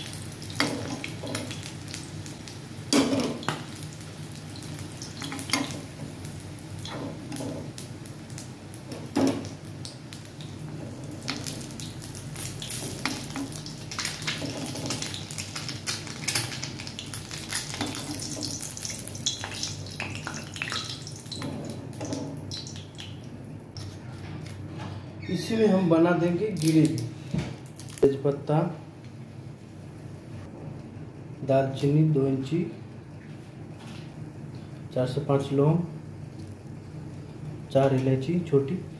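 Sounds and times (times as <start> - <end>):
eggs sizzling in hot oil: 0.0 - 23.2.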